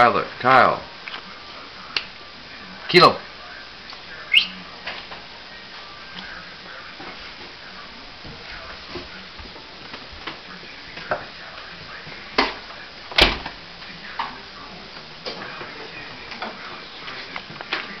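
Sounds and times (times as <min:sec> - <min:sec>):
footsteps on hardwood floor: 0:08.2 - 0:12.6.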